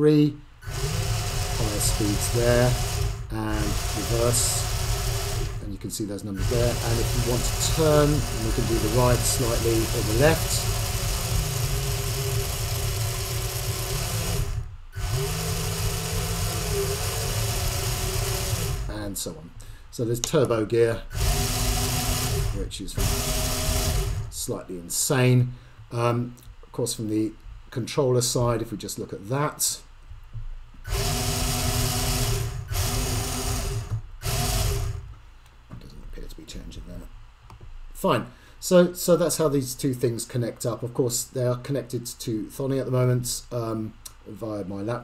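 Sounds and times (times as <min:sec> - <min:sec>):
small gearmotors whirring: 0:00.6 - 0:19.0, 0:21.0 - 0:24.4, 0:30.8 - 0:35.1.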